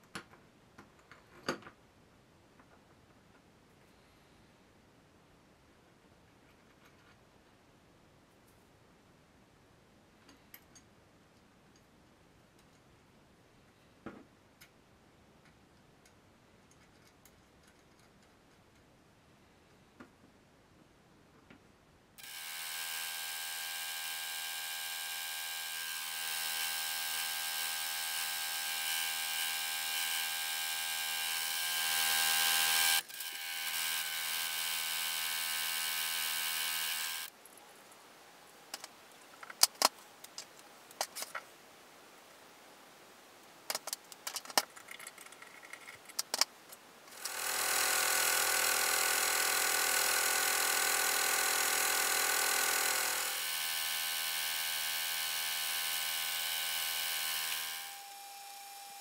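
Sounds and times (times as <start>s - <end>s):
milling machine motor whine: 22.2s - 37.3s, 47.2s - 59.0s.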